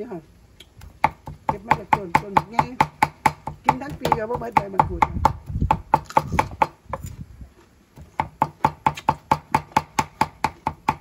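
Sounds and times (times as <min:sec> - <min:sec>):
cleaver chopping on wooden block: 0:00.8 - 0:07.0, 0:08.0 - 0:11.0.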